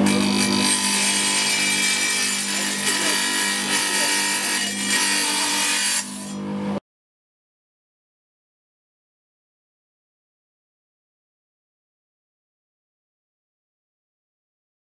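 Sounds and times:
saw blade grinding stone: 0:00.0 - 0:06.5
tile saw motor hum: 0:00.0 - 0:06.8.

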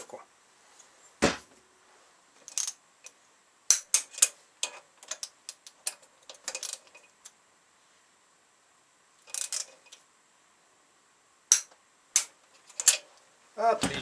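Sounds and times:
socket ratchet clicking: 0:11.5 - 0:13.0.

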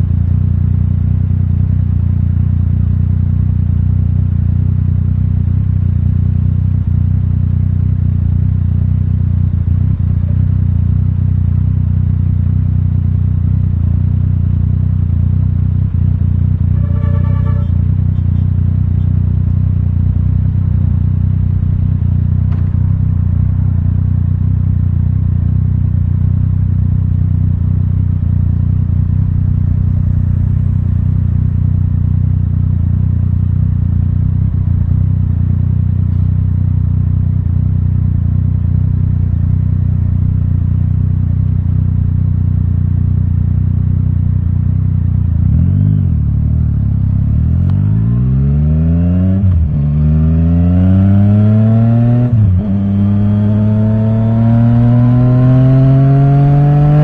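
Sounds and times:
motorcycle engine idling: 0:00.0 - 0:47.9
short high-pitched beep: 0:16.8 - 0:17.8.

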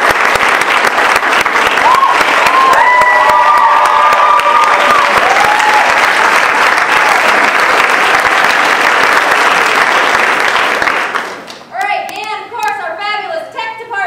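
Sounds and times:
crowd clapping: 0:00.0 - 0:12.8
people cheering: 0:00.1 - 0:11.0.

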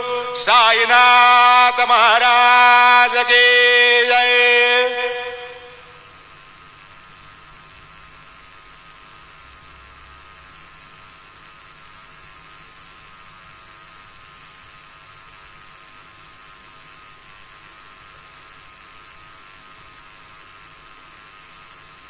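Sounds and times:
electrical hum: 0:00.0 - 0:22.0
high hiss: 0:00.0 - 0:22.0.

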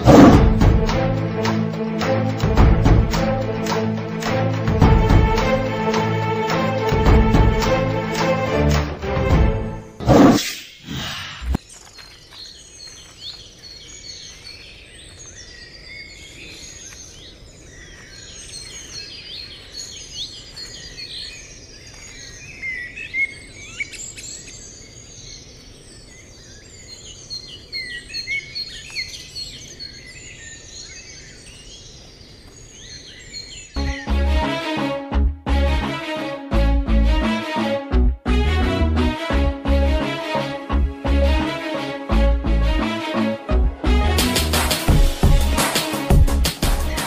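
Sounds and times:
loud sweeping sound: 0:00.0 - 0:01.6, 0:09.8 - 0:11.6
small birds chirping: 0:10.6 - 0:34.3.

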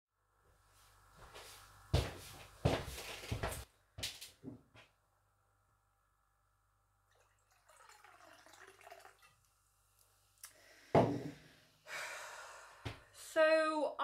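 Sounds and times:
liquid pouring into a mug: 0:07.1 - 0:09.6.

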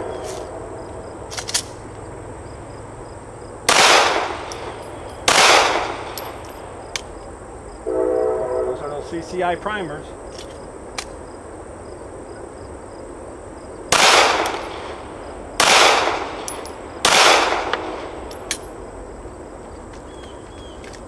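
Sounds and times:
pistol shots echoing: 0:03.7 - 0:06.4, 0:13.9 - 0:18.4.

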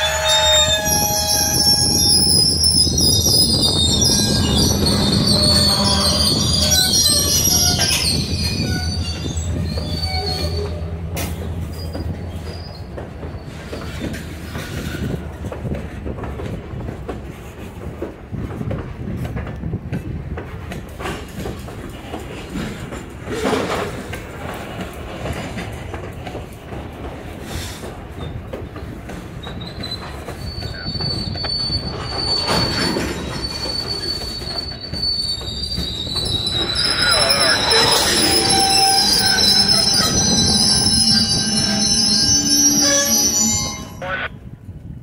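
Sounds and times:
high wheel squeal: 0:00.0 - 0:15.2, 0:29.4 - 0:44.3
train knocks and clanks: 0:00.0 - 0:45.0
train wheels rumbling on rail: 0:00.0 - 0:45.0.

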